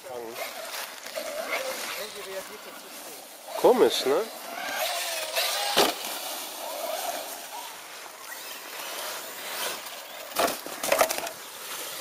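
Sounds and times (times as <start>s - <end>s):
rc car engine buzzing: 0.2s - 12.0s
rc car crashing with thud: 4.5s - 7.0s, 9.5s - 11.4s.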